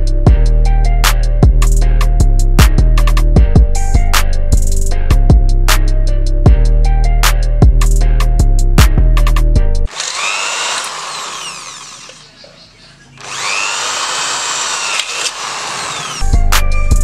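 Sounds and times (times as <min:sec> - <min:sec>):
background music with steady beat: 0:00.0 - 0:09.9, 0:16.2 - 0:17.0
electric drill boring through steel: 0:09.9 - 0:12.4, 0:13.2 - 0:16.4.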